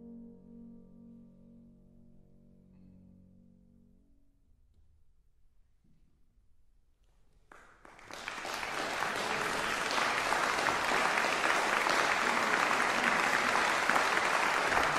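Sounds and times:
audience applauding: 0:07.5 - 0:14.9.

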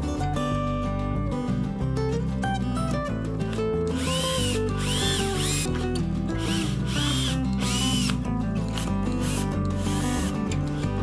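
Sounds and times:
cordless drill boring into plywood: 0:04.0 - 0:05.7, 0:06.4 - 0:08.2, 0:08.8 - 0:10.3.

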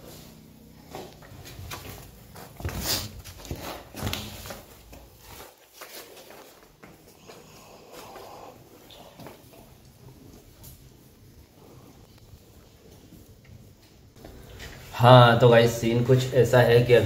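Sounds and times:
footsteps on dirt floor: 0:00.0 - 0:09.8.

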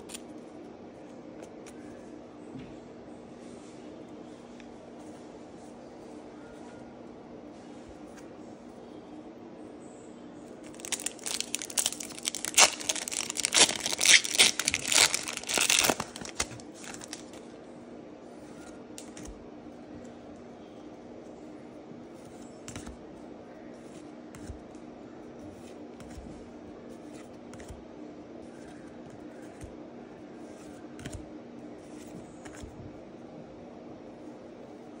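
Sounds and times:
steady low hum: 0:00.0 - 0:35.0
foil wrapper crinkling and tearing: 0:10.6 - 0:17.4.

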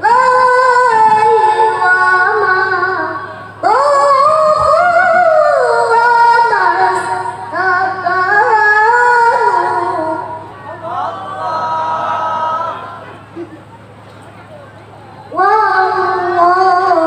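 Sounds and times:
boy reciting melodically over loudspeakers: 0:00.0 - 0:17.0.

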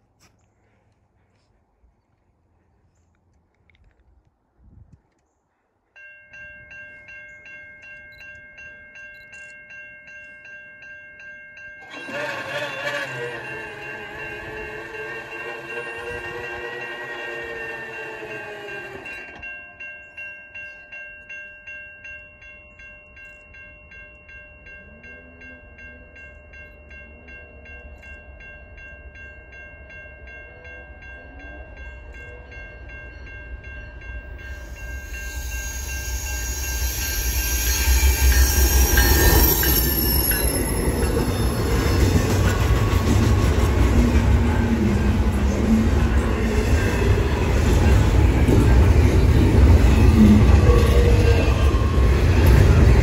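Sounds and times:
warning bell ringing: 0:06.0 - 0:53.0
train horn: 0:11.8 - 0:19.4, 0:50.0 - 0:52.8
train rumbling past: 0:11.8 - 0:19.6, 0:31.4 - 0:53.0.

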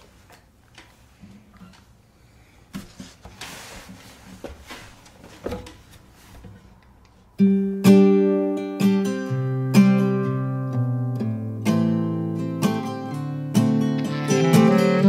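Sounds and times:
acoustic guitar strumming chords: 0:07.4 - 0:15.0.

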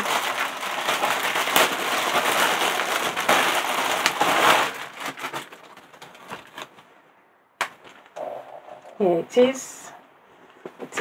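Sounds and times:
packaging rustling and crinkling: 0:00.0 - 0:06.9.

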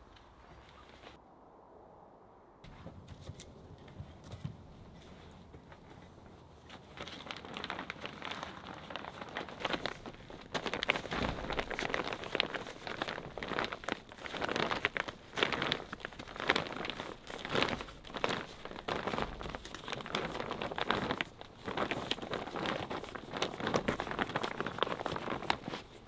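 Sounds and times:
plastic tarp crinkling: 0:06.6 - 0:26.0.

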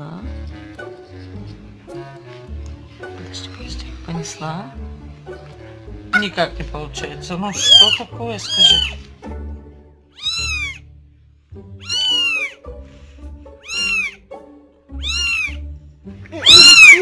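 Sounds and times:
kitten meowing: 0:07.6 - 0:09.0, 0:10.1 - 0:10.8, 0:11.8 - 0:12.6, 0:13.6 - 0:14.2, 0:15.0 - 0:15.6, 0:16.4 - 0:17.0.

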